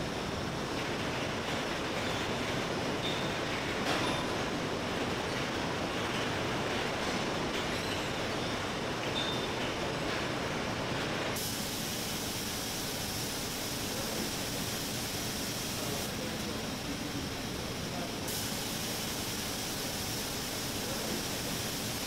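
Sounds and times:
spray guns hissing: 11.4s - 22.0s.

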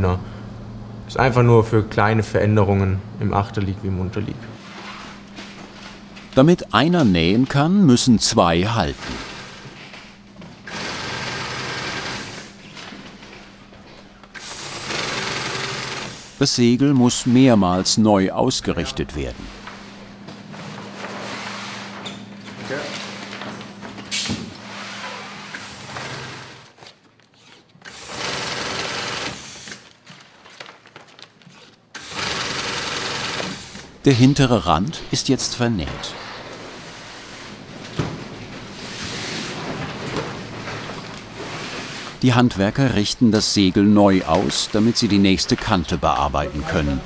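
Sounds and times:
sewing machine stitching: 10.7s - 12.4s, 14.4s - 16.2s, 27.9s - 29.6s, 32.0s - 33.7s.

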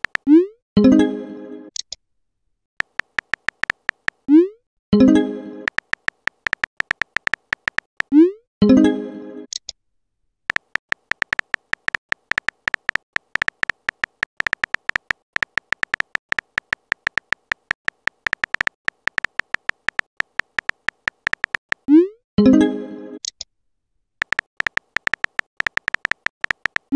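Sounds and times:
keyboard typing clicks: 0.0s - 0.3s, 2.8s - 4.3s, 5.7s - 8.2s, 10.5s - 21.9s, 24.2s - 26.9s.

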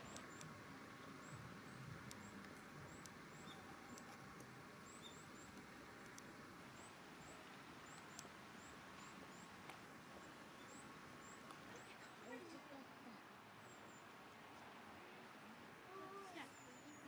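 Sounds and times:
faint clicks: 0.0s - 0.6s, 1.7s - 6.4s, 7.8s - 8.4s, 9.0s - 11.9s
small bird chirping: 1.2s - 9.5s.

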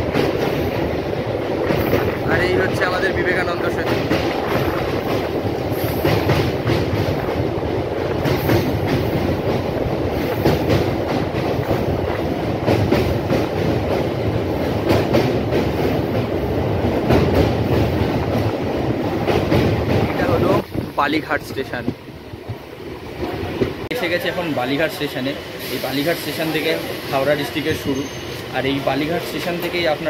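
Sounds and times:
wheels clacking over rail joints: 0.0s - 20.7s
train rumbling over bridge: 0.0s - 30.0s.

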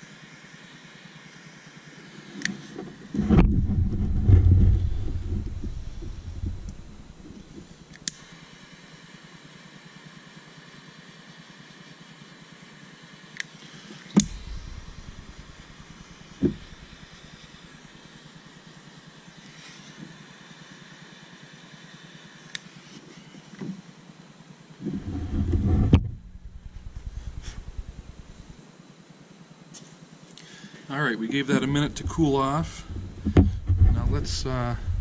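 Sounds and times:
torch ignition click: 13.4s - 17.0s
torch flame hissing: 13.7s - 17.9s, 25.0s - 28.5s, 31.3s - 35.0s.

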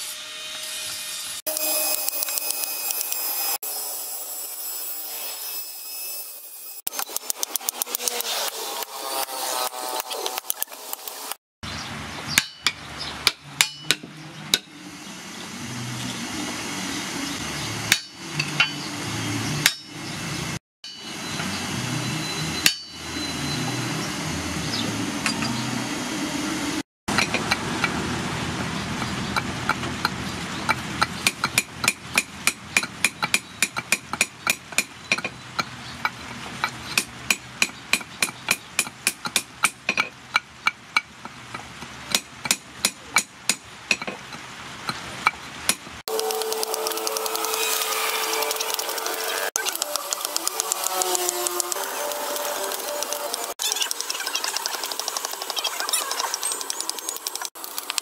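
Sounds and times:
hammer striking axe head: 12.4s - 14.7s, 17.9s - 18.8s, 19.6s - 19.9s, 22.6s - 23.1s.

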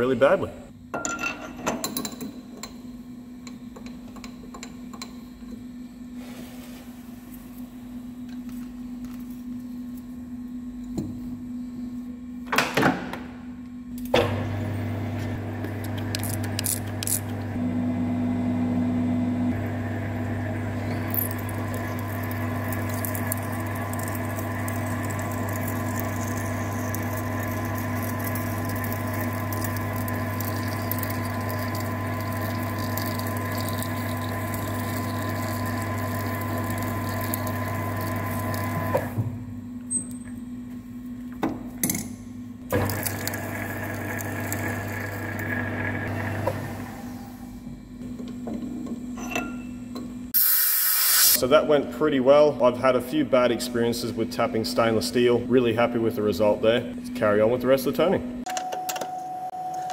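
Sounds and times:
lathe humming: 14.4s - 39.2s, 42.7s - 47.4s.

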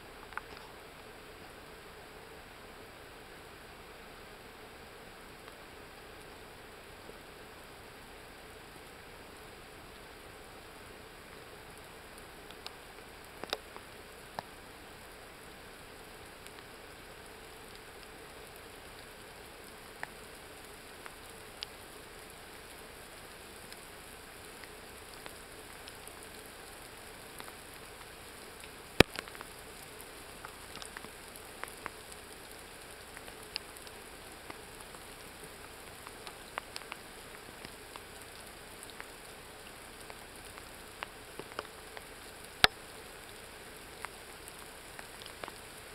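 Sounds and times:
faint rain hiss: 0.0s - 45.9s
raindrop taps: 29.0s - 29.5s.

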